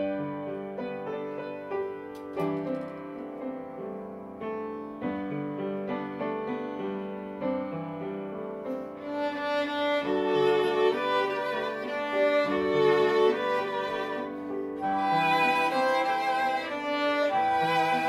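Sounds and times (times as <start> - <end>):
piano: 0.0 - 18.0
violin: 8.9 - 18.0
second bowed string instrument: 9.0 - 18.0
flute: 10.3 - 18.0.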